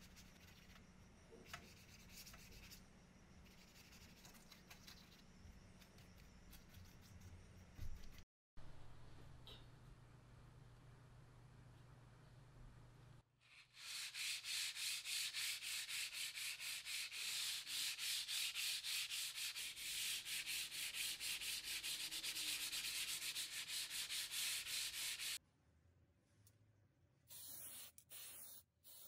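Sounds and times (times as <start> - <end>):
sandpaper scratching on metal: 13.5 - 25.4.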